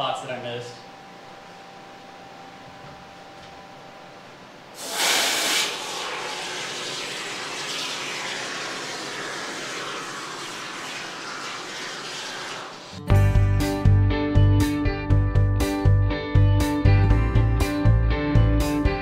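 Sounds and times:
spray foam can hissing: 4.8 - 13.0.

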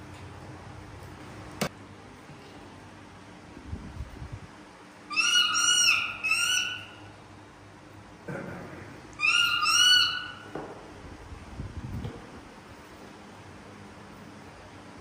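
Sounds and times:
baby monkey high-pitched calls: 5.1 - 7.2, 9.2 - 10.5.

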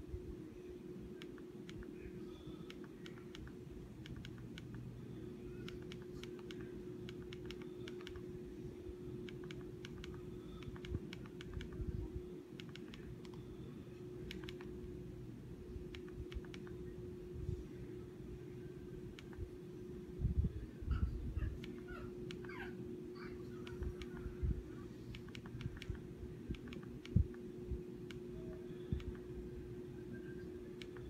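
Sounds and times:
steady low hum: 0.0 - 31.0
remote control buttons clicking: 1.1 - 4.9, 5.5 - 8.3, 9.2 - 11.9, 12.5 - 14.9, 15.9 - 16.9, 19.1 - 19.5, 21.6 - 22.6, 23.5 - 24.4, 25.0 - 29.3, 30.6 - 31.0.

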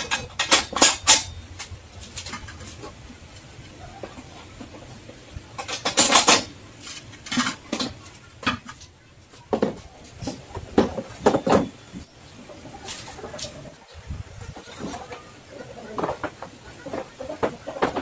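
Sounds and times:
metal clanks against steel frame: 0.0 - 4.8, 5.5 - 8.9.

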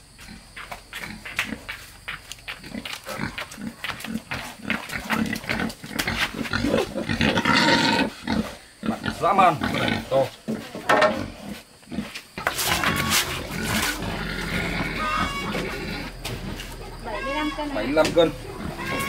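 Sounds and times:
pig grunting: 2.6 - 17.6, 18.3 - 19.0
pig squealing: 6.4 - 10.1, 12.4 - 19.0.

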